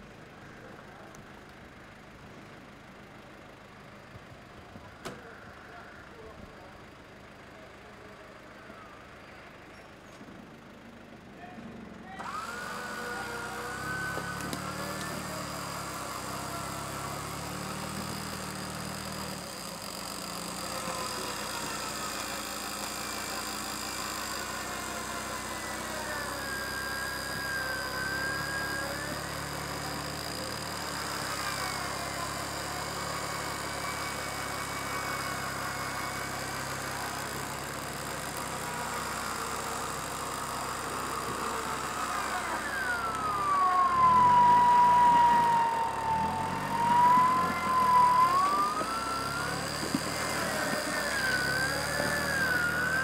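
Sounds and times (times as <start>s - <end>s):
engine running under load: 0.0s - 53.0s
winch whine: 12.2s - 53.0s.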